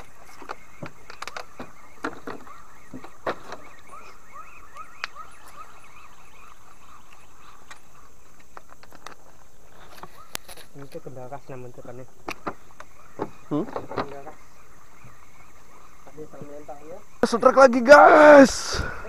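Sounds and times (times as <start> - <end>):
animal chirping: 0.6 - 8.2.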